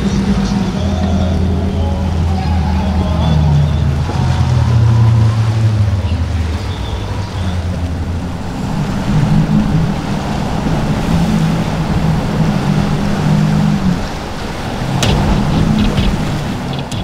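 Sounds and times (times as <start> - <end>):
outboard engines running hard: 0.0 - 17.0
wind: 0.0 - 17.0
spray and surf rushing: 3.4 - 17.0.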